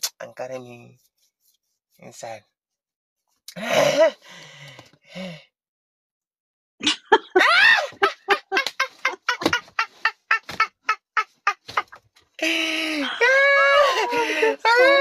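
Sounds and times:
hearty laughter: 0:07.1 - 0:12.0.

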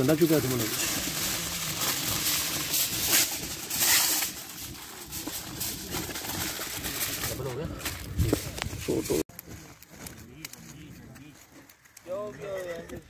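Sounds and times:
aluminium foil crinkling: 0:00.0 - 0:13.0.

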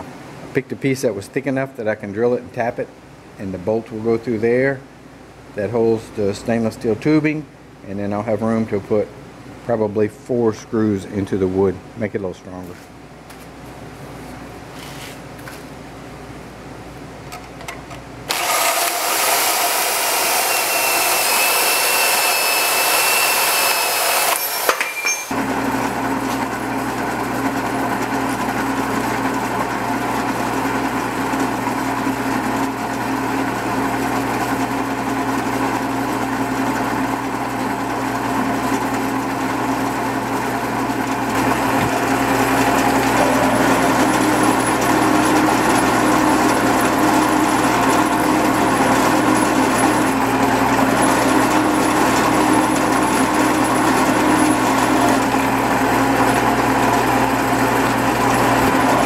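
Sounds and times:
loud hissing power tool: 0:18.3 - 0:25.3
drill press drilling metal: 0:18.3 - 0:26.9, 0:40.6 - 0:59.0.

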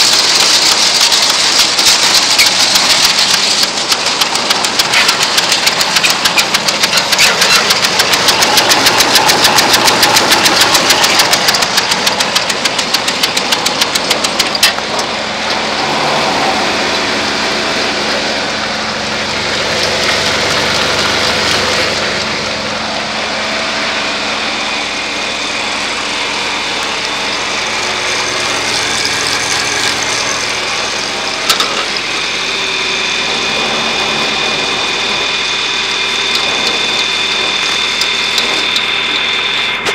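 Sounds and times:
engine running: 0:00.0 - 0:39.9
fast clattering rattle: 0:00.0 - 0:39.9.

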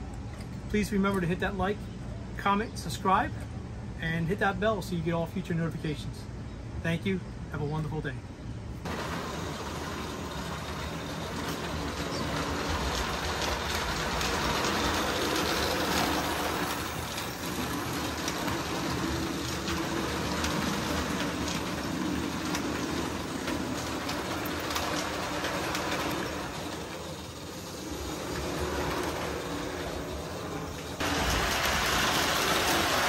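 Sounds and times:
model train rolling rumble: 0:08.8 - 0:33.0.

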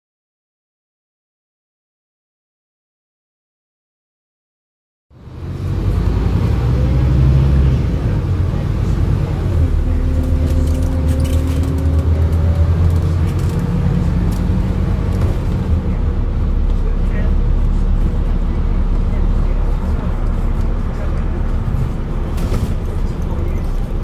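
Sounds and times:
bus diesel engine running: 0:05.1 - 0:24.0
rising engine whine: 0:05.1 - 0:24.0.

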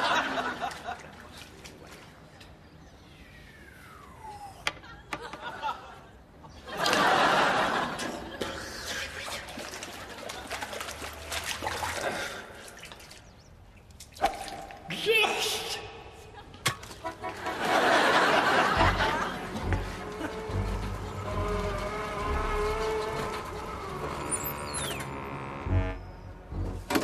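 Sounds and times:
audience laughter: 0:00.0 - 0:01.2, 0:04.8 - 0:08.6, 0:16.2 - 0:21.2.

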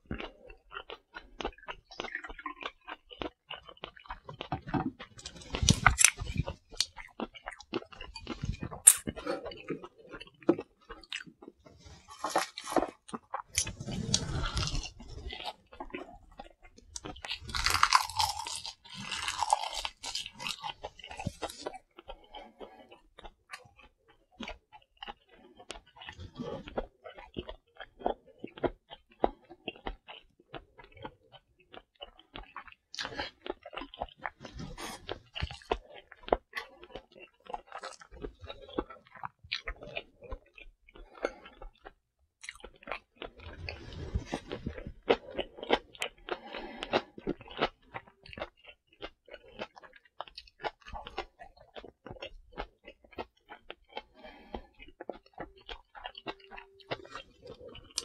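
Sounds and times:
close chewing and biting: 0:00.0 - 0:58.0.

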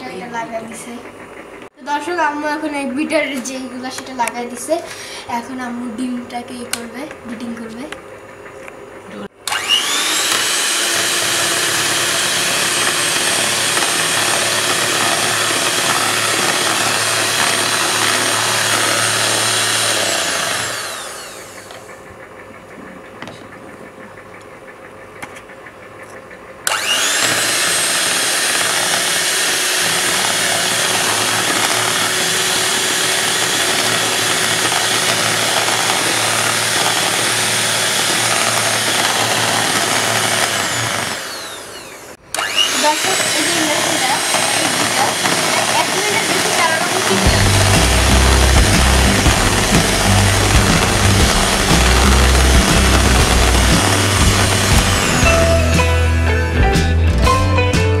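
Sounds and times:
electric hand mixer whining: 0:09.2 - 0:22.5, 0:26.6 - 0:56.3.

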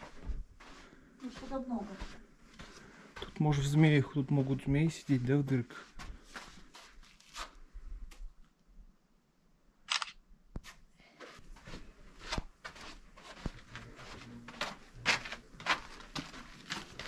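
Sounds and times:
footsteps crunching on sand: 0:00.0 - 0:07.6, 0:11.4 - 0:17.0.

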